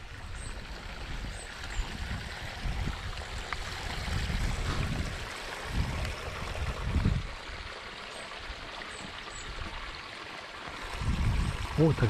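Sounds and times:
wind rumble on microphone: 0:00.0 - 0:07.7, 0:10.8 - 0:12.0
water rushing in ditch: 0:00.0 - 0:12.0.

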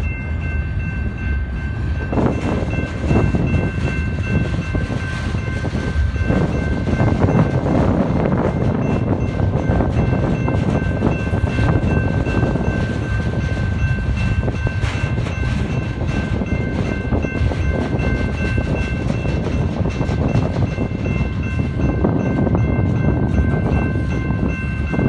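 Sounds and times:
train wheels rumbling on rail: 0:00.0 - 0:25.0
wind buffeting microphone: 0:00.0 - 0:25.0.

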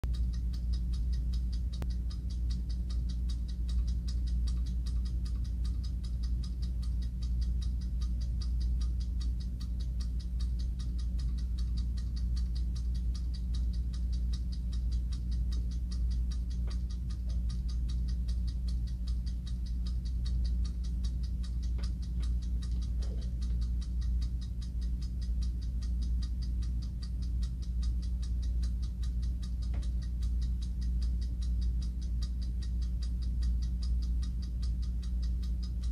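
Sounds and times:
clock ticking fast: 0:00.0 - 0:35.9
low hum: 0:00.0 - 0:35.9.

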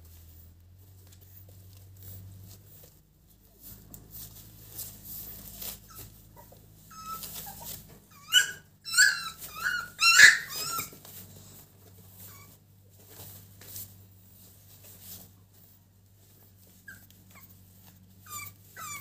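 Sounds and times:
puppies scuffling: 0:00.0 - 0:19.0
puppies yelping and squealing: 0:05.8 - 0:11.2, 0:16.8 - 0:19.0.

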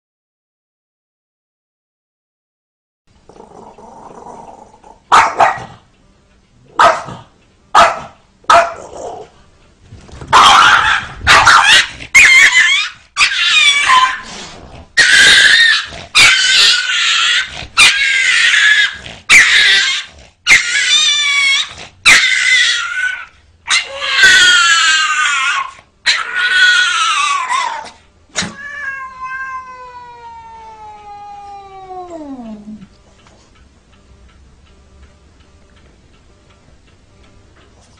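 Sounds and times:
small dog yapping: 0:05.1 - 0:05.7, 0:10.3 - 0:14.3, 0:15.0 - 0:29.6
cat yowling and growling: 0:10.3 - 0:32.9.

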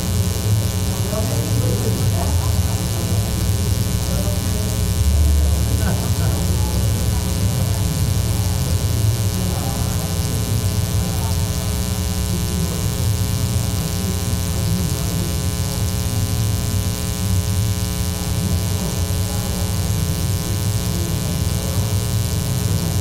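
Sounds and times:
electrical mains hum: 0:00.0 - 0:23.0.

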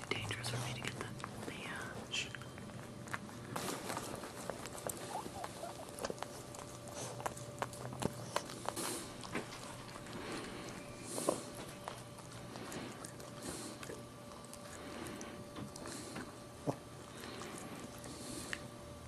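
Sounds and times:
puppies squeaking: 0:04.4 - 0:08.5.

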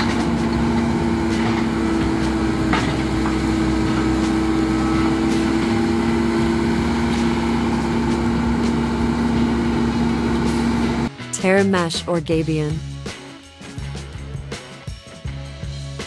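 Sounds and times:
diesel machinery engine droning: 0:00.0 - 0:11.1.

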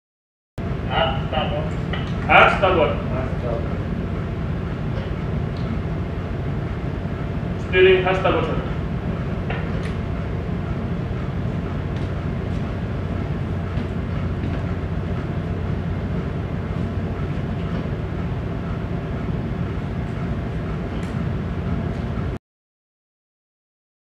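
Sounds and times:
ship engine drone: 0:00.6 - 0:22.4.

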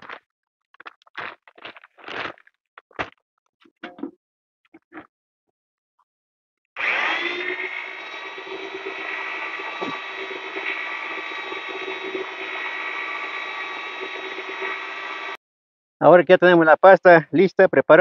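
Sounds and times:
electric paddle mixer churning paste: 0:06.8 - 0:15.4.

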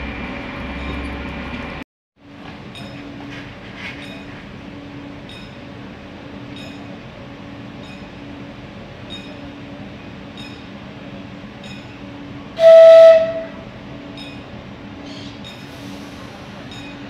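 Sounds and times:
train horn blast: 0:12.6 - 0:13.7.

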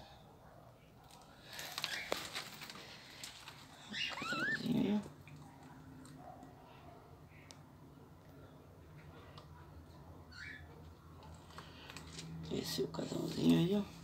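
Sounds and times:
budgerigar warbling chirp: 0:03.9 - 0:04.7.

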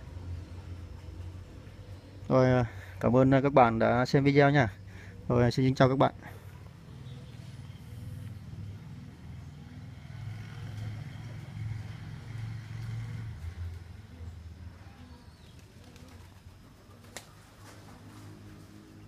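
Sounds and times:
faint bird calls: 0:04.7 - 0:09.8, 0:14.0 - 0:18.1.

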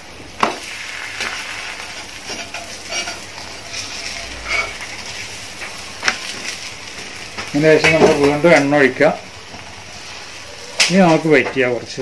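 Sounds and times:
flatbread sizzling on griddle: 0:00.0 - 0:12.0
metal spatula scraping griddle: 0:01.2 - 0:05.2.

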